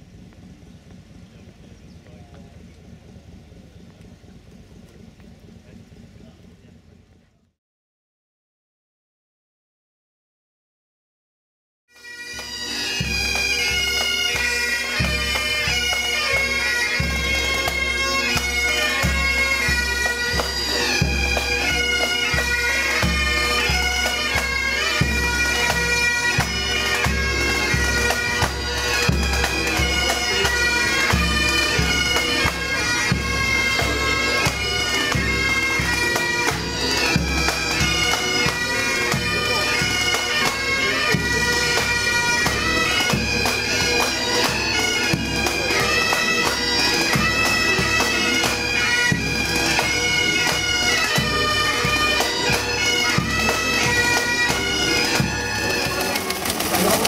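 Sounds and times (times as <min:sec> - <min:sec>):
bass drum beating: 0:00.0 - 0:07.3
bagpipes playing melody: 0:11.9 - 0:57.0.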